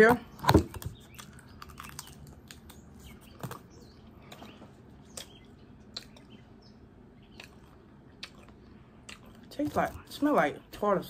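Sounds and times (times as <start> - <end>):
low room hum: 0.0 - 11.0
mouth clicks and smacks: 4.3 - 6.4, 7.2 - 9.5.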